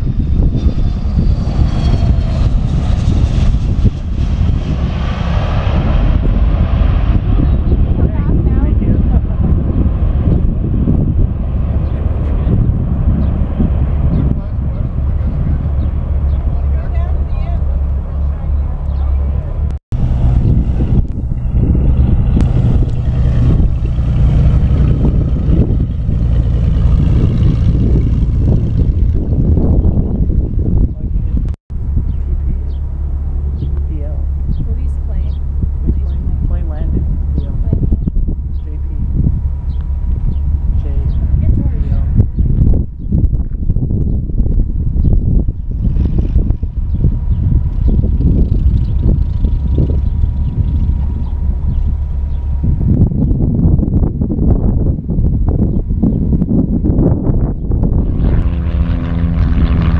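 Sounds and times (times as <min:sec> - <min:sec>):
heavy low rumble: 0:00.0 - 0:59.9
jet engine whine: 0:00.0 - 0:59.9.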